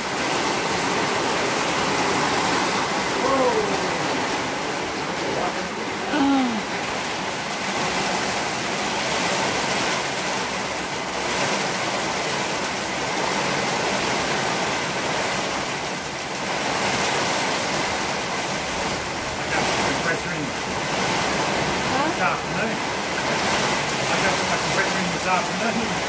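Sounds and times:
heavy rain falling: 0:00.0 - 0:26.0.

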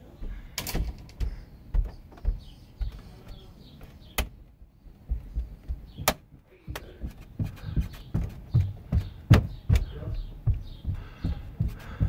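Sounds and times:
thumps of jumping on wooden floor: 0:05.0 - 0:12.0.

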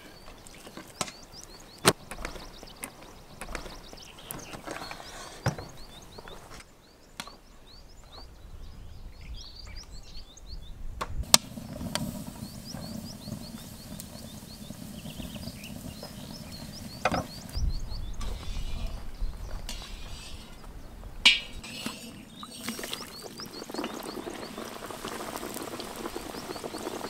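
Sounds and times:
wood fire burning and crackling: 0:00.0 - 0:06.6, 0:11.2 - 0:27.0
small birds chirping: 0:00.0 - 0:27.0
loud crack: 0:11.2 - 0:14.6.

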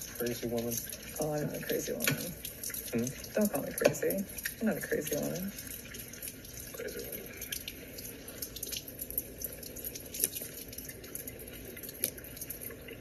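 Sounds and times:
small clicks and drips: 0:00.0 - 0:13.0
tap running into sink: 0:01.6 - 0:02.3, 0:03.6 - 0:04.2.

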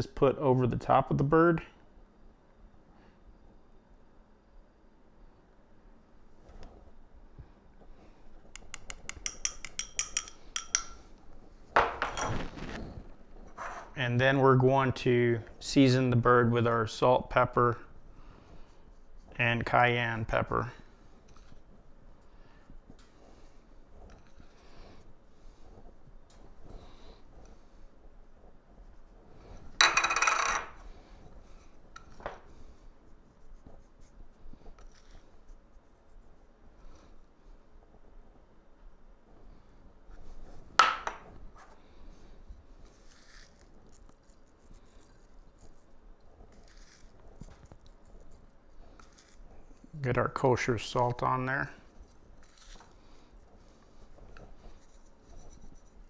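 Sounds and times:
metal needle clinking on glass bowl: 0:08.6 - 0:11.0
objects clattering on wooden table: 0:11.8 - 0:12.8, 0:29.8 - 0:30.8, 0:40.8 - 0:41.3.

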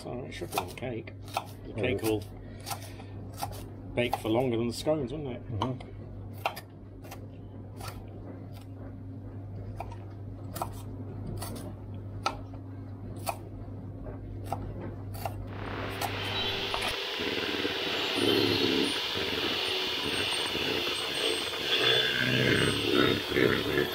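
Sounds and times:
low steady hum: 0:00.0 - 0:23.9
electric hand mixer whirring: 0:15.5 - 0:23.9.

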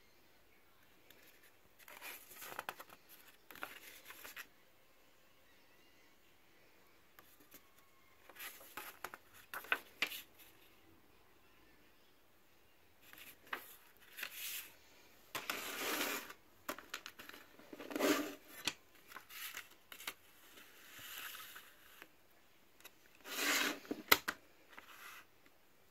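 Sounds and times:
paper booklet rustling: 0:01.1 - 0:04.5, 0:08.2 - 0:10.6, 0:13.0 - 0:14.8, 0:15.4 - 0:22.1.

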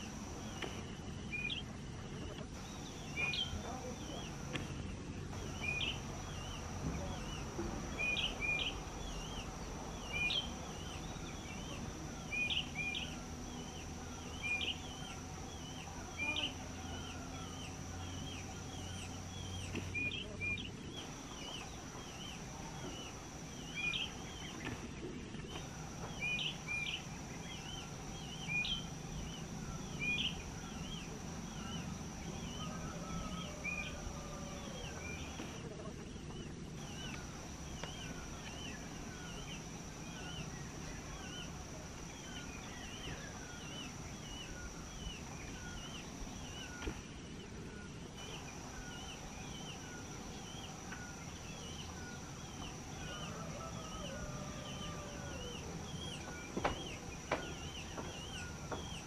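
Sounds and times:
bullfinches calling: 0:00.0 - 0:24.8
steady high-pitched drone: 0:00.0 - 0:35.8, 0:36.6 - 0:59.0.

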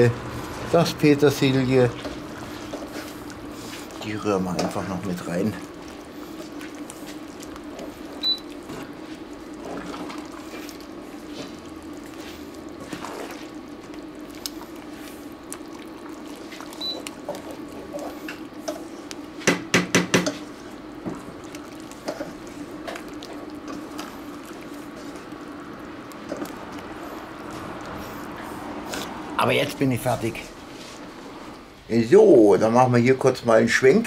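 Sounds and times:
low steady hum: 0:00.0 - 0:34.0
spatula stirring thick sauce: 0:00.2 - 0:29.4
knocks on pot: 0:19.4 - 0:20.4.

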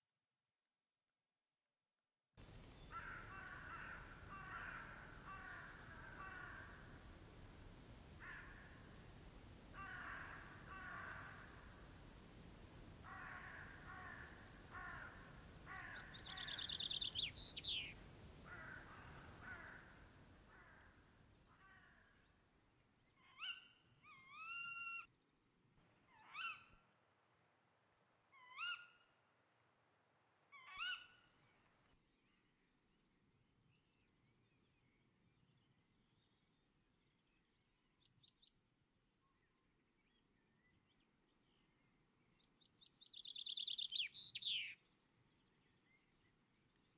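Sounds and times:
crows cawing: 0:02.9 - 0:07.0, 0:08.2 - 0:08.8, 0:09.8 - 0:11.8, 0:13.0 - 0:17.8, 0:18.4 - 0:22.1
short clear rising bird calls: 0:13.0 - 0:20.9, 0:25.8 - 0:26.8, 0:28.3 - 0:29.2, 0:30.5 - 0:31.8, 0:42.6 - 0:44.8.

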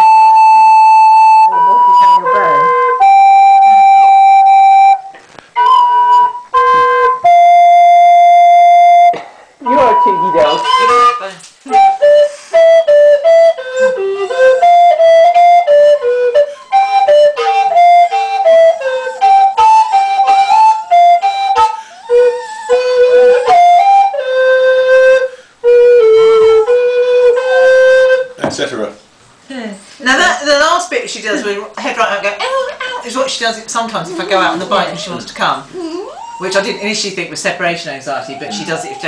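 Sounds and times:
recorder playing a tune: 0:00.0 - 0:28.4
dog howling: 0:13.7 - 0:25.3, 0:34.6 - 0:37.2, 0:38.1 - 0:39.0.

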